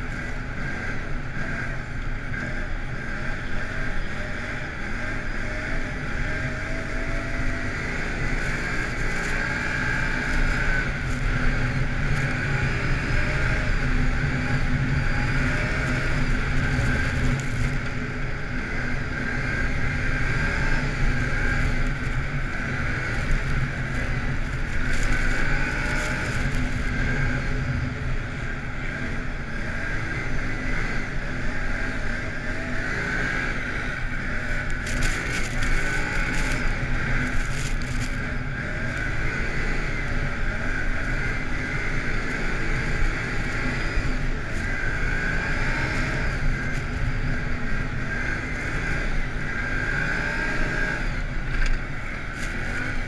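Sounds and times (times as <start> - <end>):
atv engine running: 0.0 - 53.0
steady rushing noise: 0.0 - 53.0.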